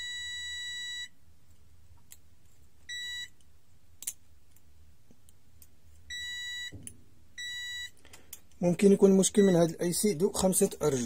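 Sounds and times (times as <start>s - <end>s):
multimeter continuity beep: 0.0s - 1.2s, 2.9s - 3.4s, 6.1s - 6.8s, 7.4s - 8.0s, 9.3s - 9.7s.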